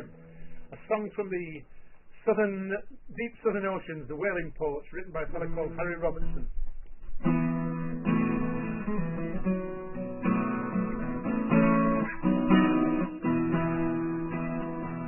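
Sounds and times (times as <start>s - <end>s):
acoustic guitar strumming: 0.0s - 2.3s, 7.2s - 15.0s.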